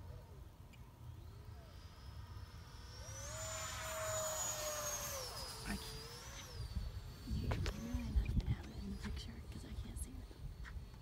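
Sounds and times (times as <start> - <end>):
electric ducted fan whining: 0.0 - 11.0
low rumble: 4.6 - 11.0.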